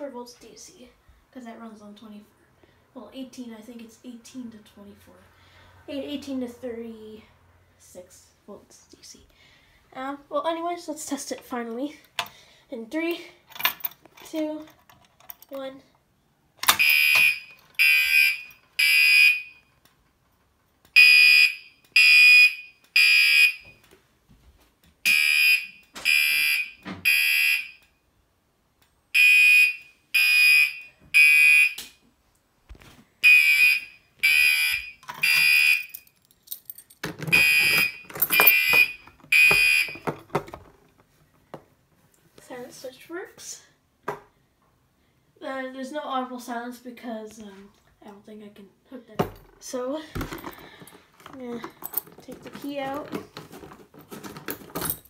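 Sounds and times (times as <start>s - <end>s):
fire alarm horn blasts: 16.8s - 19.7s, 21.0s - 23.7s, 25.0s - 27.8s, 29.1s - 31.8s, 33.2s - 35.9s, 37.3s - 40.0s.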